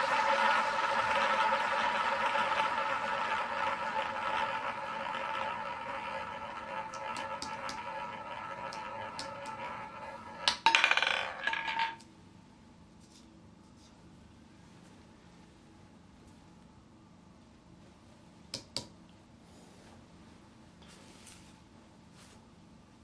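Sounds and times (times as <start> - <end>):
roulette balls rolling: 0.0 - 12.1
balls clicking on deflectors: 2.6 - 11.9.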